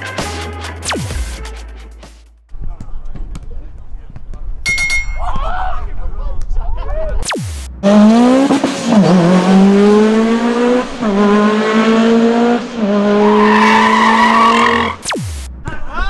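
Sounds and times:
racing car engine accelerating: 0:07.8 - 0:15.0.

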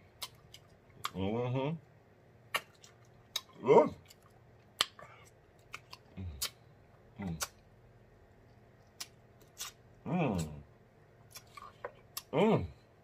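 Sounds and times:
wet lip smacks: 0:02.5 - 0:03.5
man humming: 0:03.6 - 0:04.0.

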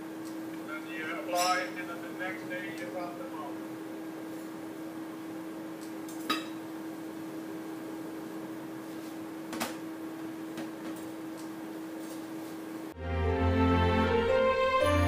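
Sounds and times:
steady hum: 0:00.0 - 0:14.0
kitchenware clinking: 0:01.3 - 0:01.8.

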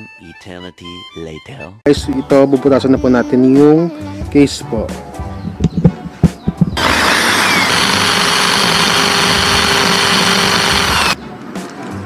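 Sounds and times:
electric drill whining: 0:06.8 - 0:11.2.

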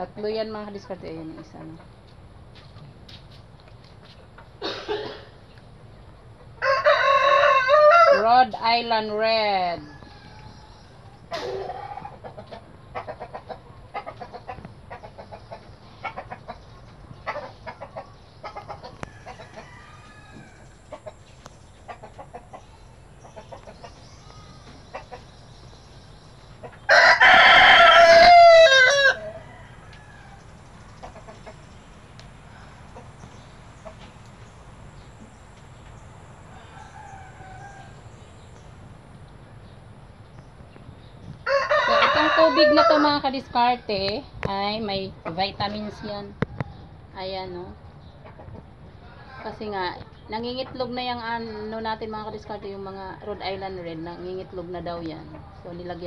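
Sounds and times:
rooster crowing: 0:06.6 - 0:08.5, 0:19.0 - 0:20.8, 0:26.9 - 0:30.7, 0:36.1 - 0:38.5, 0:41.4 - 0:43.9
chickens clucking softly: 0:09.8 - 0:27.0, 0:27.6 - 0:39.9, 0:48.0 - 0:53.1.

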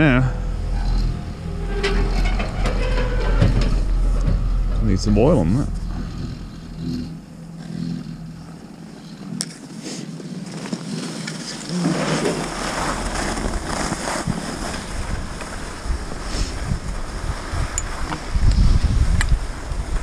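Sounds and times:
skis sliding over packed snow: 0:09.5 - 0:17.5.

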